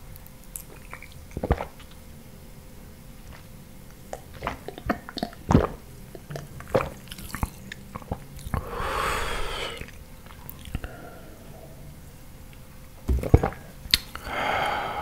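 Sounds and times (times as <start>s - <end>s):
gulping and swallowing: 0.7s - 2.0s, 4.1s - 8.7s
breathy rush of air: 8.6s - 9.9s, 14.2s - 15.0s.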